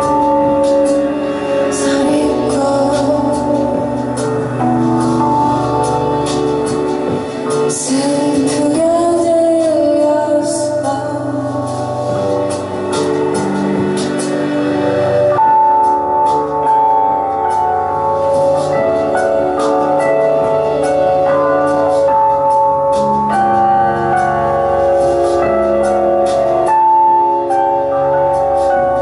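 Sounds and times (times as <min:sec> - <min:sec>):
electric keyboard chords: 0:00.0 - 0:29.0
woman singing: 0:01.7 - 0:04.5, 0:07.6 - 0:12.0.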